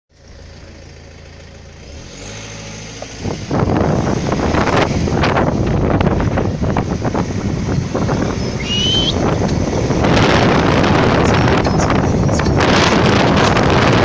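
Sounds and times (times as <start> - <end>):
car engine revving: 1.7 - 14.0
wind buffeting microphone: 3.2 - 14.0.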